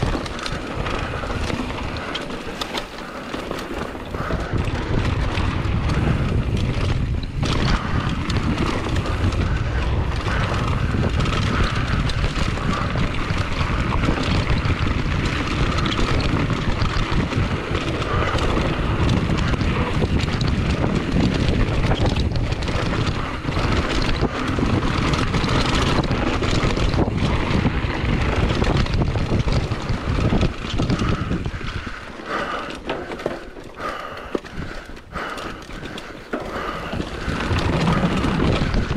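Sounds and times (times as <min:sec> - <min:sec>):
bike rattling and knocking: 0:00.0 - 0:38.9
bike tyres rumbling on dirt: 0:00.0 - 0:38.9
wind buffeting microphone: 0:00.0 - 0:38.9.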